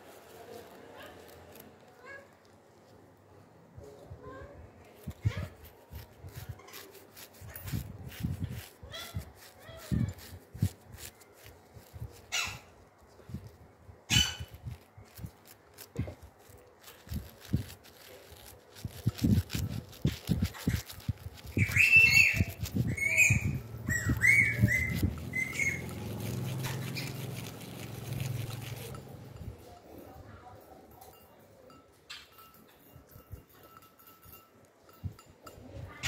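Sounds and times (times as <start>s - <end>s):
high chirping squeaks: 4.9s - 29.6s
low rubbing rumble: 21.6s - 29.6s.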